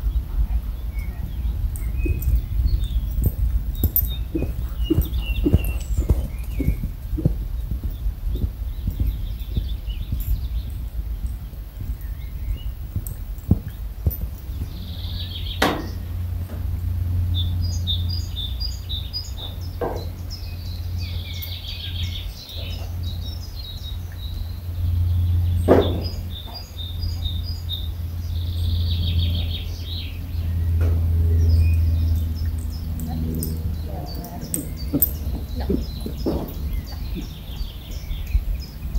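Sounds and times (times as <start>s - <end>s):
low rumble: 0.0s - 38.9s
small birds chirping: 0.0s - 38.9s
sharp knocks: 25.7s - 26.3s.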